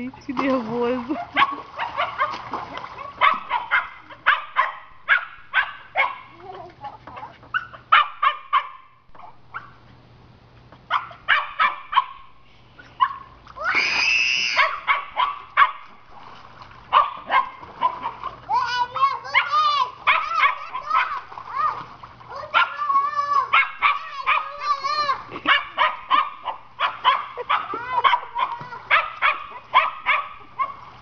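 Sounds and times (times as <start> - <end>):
small dog yapping: 1.3 - 2.4, 3.0 - 6.3, 7.1 - 9.8, 10.9 - 12.2, 13.0 - 15.9, 16.9 - 18.2, 18.9 - 30.8
dog high drawn-out cry: 10.9 - 12.2, 13.0 - 15.8, 16.9 - 30.8.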